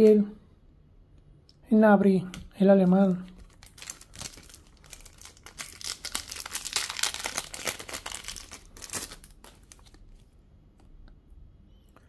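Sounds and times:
foil pack crinkling and tearing: 3.3 - 10.2.

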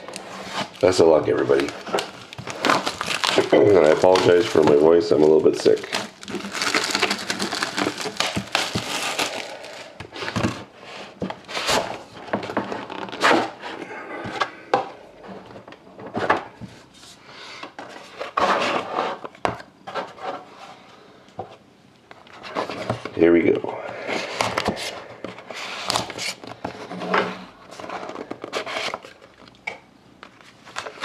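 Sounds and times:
shrink wrap crinkling and tearing: 0.0 - 10.5, 12.8 - 13.5, 30.3 - 31.0.

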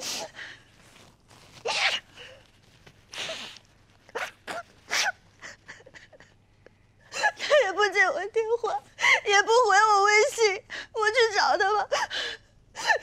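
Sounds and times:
woman crying and sniffling: 0.0 - 0.6, 3.1 - 6.4, 7.0 - 7.8, 11.9 - 13.0.

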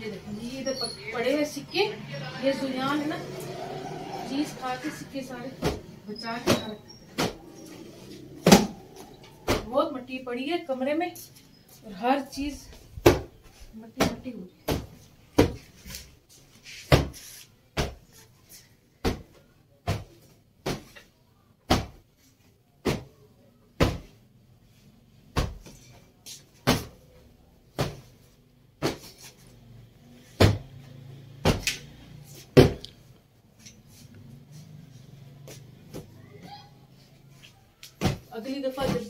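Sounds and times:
cloth duster slapping furniture: 14.0 - 18.1.

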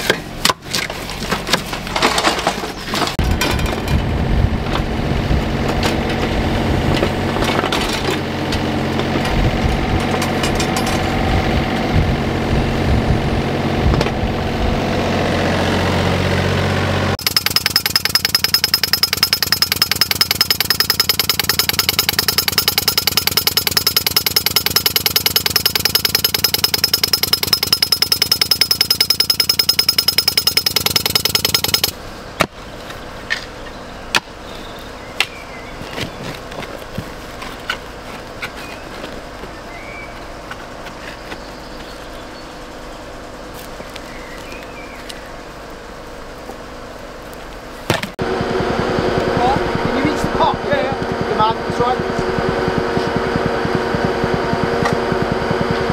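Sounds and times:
excavator diesel engine running: 15.4 - 31.9, 48.2 - 55.9
pneumatic moling tool hammering: 17.2 - 32.0, 49.0 - 55.9.

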